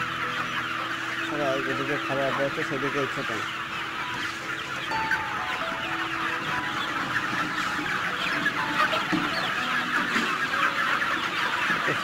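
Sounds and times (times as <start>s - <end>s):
chickens clucking and squawking: 0.0s - 12.0s.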